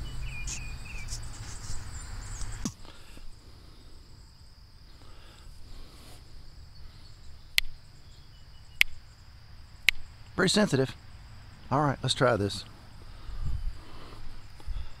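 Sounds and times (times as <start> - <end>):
insects trilling: 0.0 - 15.0
sharp clicks: 7.5 - 7.8, 8.8 - 9.0, 9.8 - 10.4.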